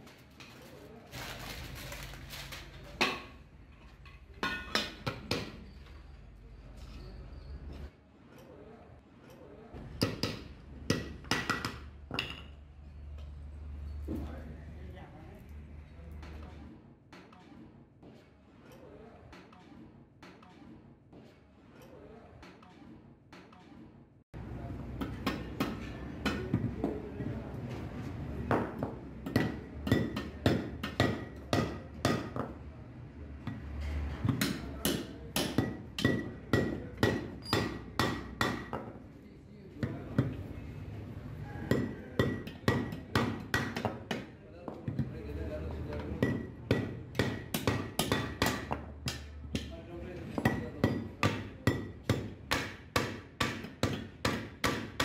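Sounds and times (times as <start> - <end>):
hammer striking steel rivets: 34.3 - 38.8.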